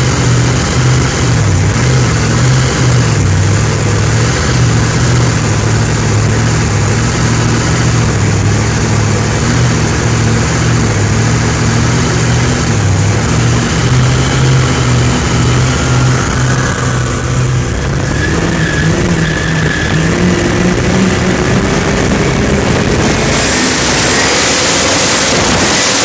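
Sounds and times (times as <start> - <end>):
boat engine droning: 0.0 - 26.0
wind rushing: 14.7 - 26.0.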